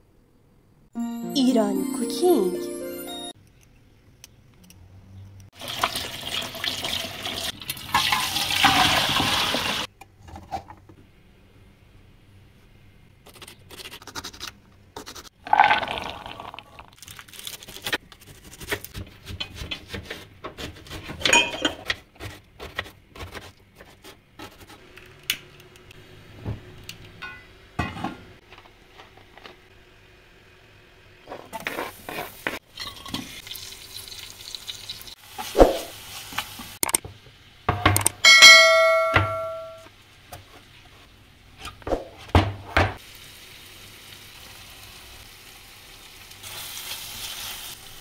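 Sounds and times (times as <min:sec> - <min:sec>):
water running: 0:05.6 - 0:09.9.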